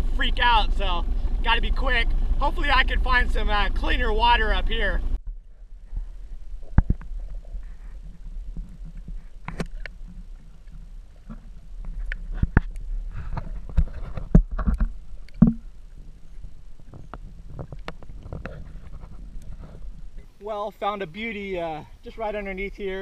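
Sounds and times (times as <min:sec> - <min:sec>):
underwater rumble of moving water: 0:00.0 - 0:23.0
sharp clicks and knocks: 0:08.5 - 0:15.7.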